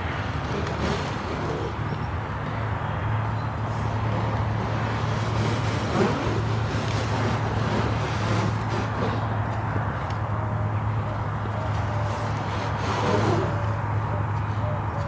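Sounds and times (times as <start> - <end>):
low mechanical hum: 0.0 - 15.0
outdoor background noise: 0.0 - 15.0.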